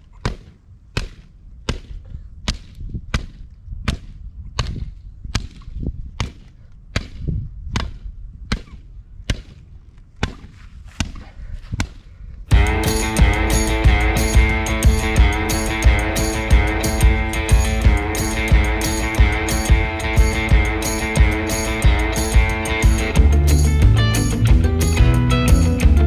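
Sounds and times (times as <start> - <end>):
axe chopping wood: 0.2 - 9.6, 10.2 - 12.0.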